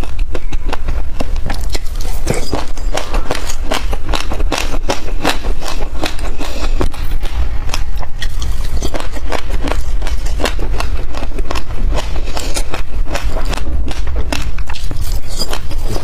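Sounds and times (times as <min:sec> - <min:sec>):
chewing crunchy seeds: 0:00.0 - 0:16.0
steady low hum: 0:00.0 - 0:16.0
metal spoon scraping glass dish: 0:01.7 - 0:03.0.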